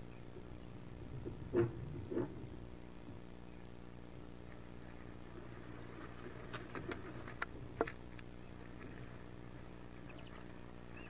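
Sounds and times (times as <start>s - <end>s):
steady low hum: 0.0s - 11.0s
ducklings scratching and tapping: 4.9s - 11.0s.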